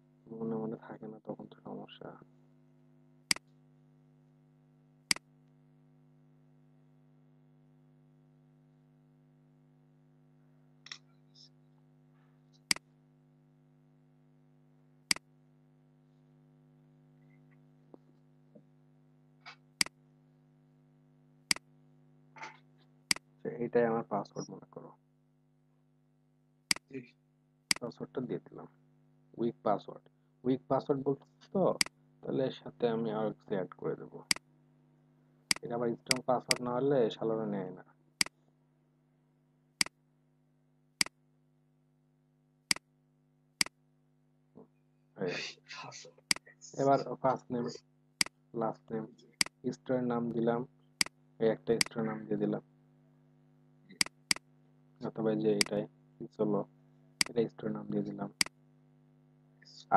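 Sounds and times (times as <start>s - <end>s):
steady low hum: 0.0s - 42.0s, 44.5s - 59.9s
computer mouse clicks: 53.9s - 54.4s.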